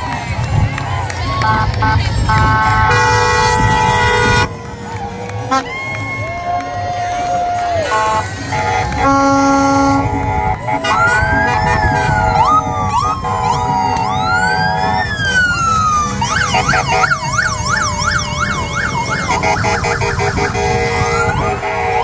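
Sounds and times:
motorcycle siren wailing and yelping: 8.8 - 22.0.

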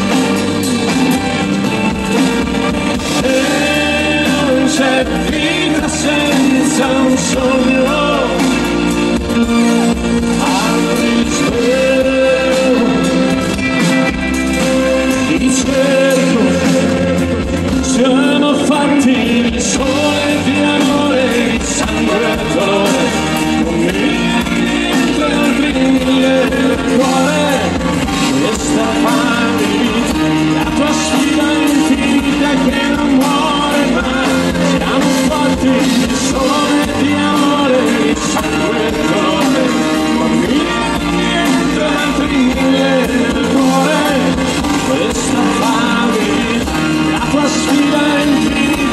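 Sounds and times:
bass guitar: 0.0 - 48.9
drums: 0.0 - 48.9
electric guitars: 0.0 - 48.9
keyboards: 0.0 - 48.9.

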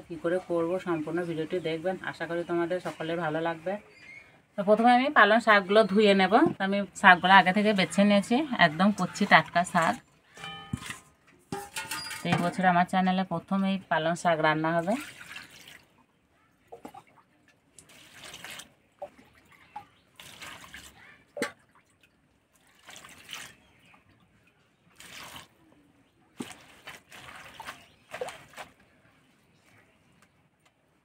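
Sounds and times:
leaves splashing in water: 17.7 - 21.6, 22.6 - 23.9, 24.9 - 25.6, 26.4 - 29.0.

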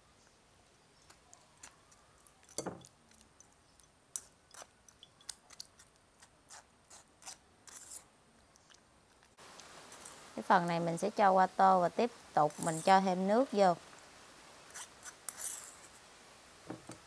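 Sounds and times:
utensils clicking against a bowl: 1.9 - 5.9.

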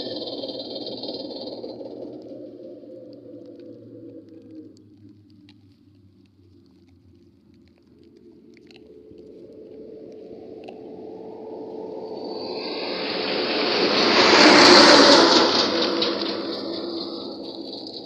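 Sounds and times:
heavy truck driving past: 10.3 - 18.0.

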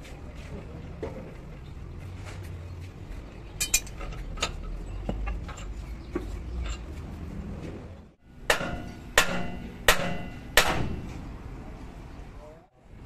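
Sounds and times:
light metal clinks and knocks: 3.6 - 7.0.

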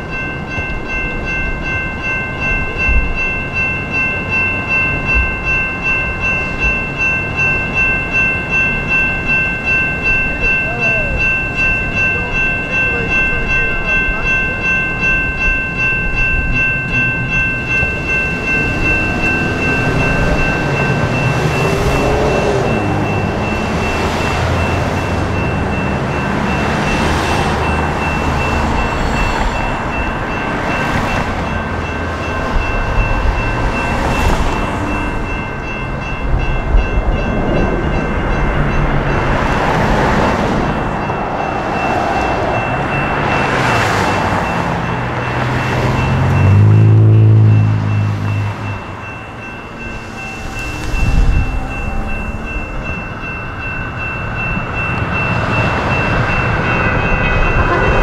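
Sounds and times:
low traffic rumble: 0.0 - 58.0
railroad crossing bells ringing: 0.0 - 58.0
cars swishing past: 17.4 - 58.0.

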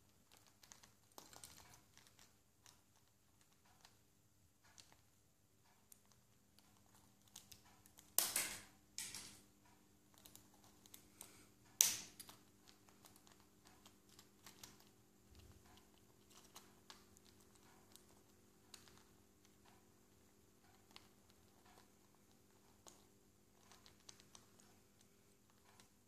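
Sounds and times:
parrot chewing plastic pen: 0.1 - 4.0, 12.3 - 26.0.

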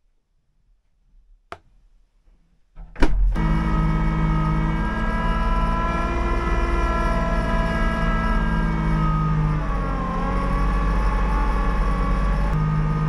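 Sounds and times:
tractor diesel engine running: 3.4 - 13.0.

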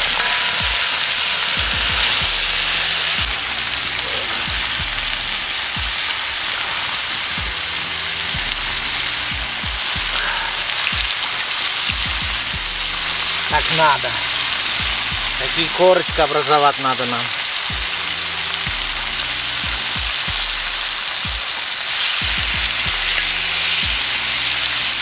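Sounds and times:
chicken sizzling in oil: 0.0 - 25.0
low thumps: 14.7 - 15.4.

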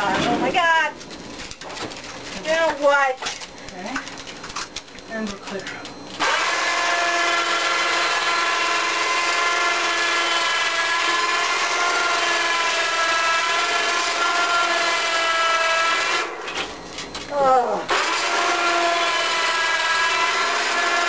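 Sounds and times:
electric winch motor whining: 6.1 - 21.0.

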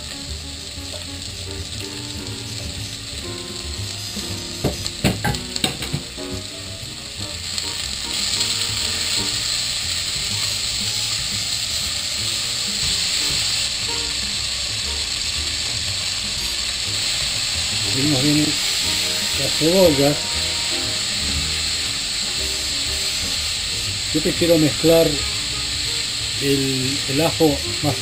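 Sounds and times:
onions sizzling in oil: 0.0 - 28.0
sharp knocks: 4.6 - 6.2.

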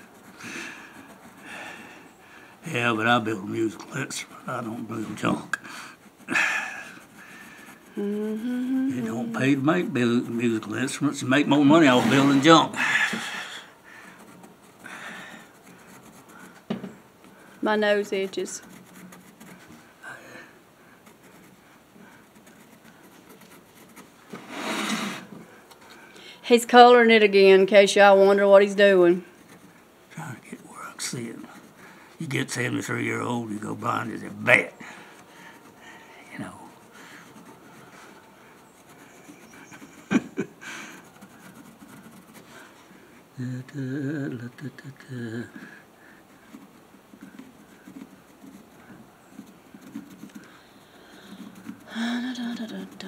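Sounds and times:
pencil scratching on wood: 0.0 - 53.0
person speaking: 7.1 - 12.9, 26.5 - 37.5, 43.4 - 45.8.

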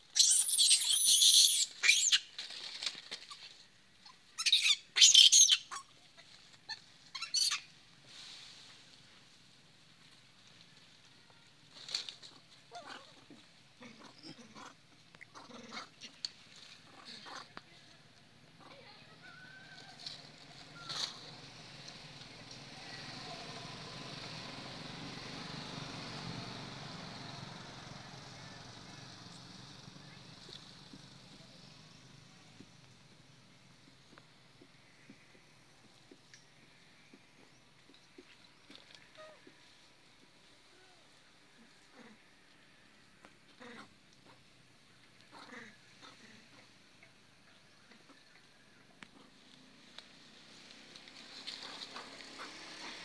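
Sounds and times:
young monkey screaming: 0.1 - 2.2, 4.4 - 5.9, 6.7 - 7.7
motor vehicle engine rumble: 17.6 - 53.0.

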